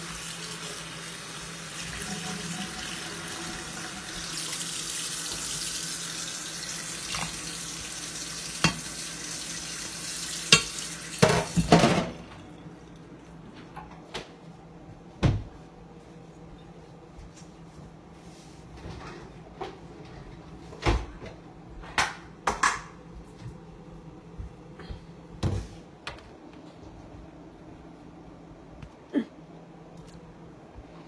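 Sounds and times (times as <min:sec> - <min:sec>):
water running: 0:00.0 - 0:13.4.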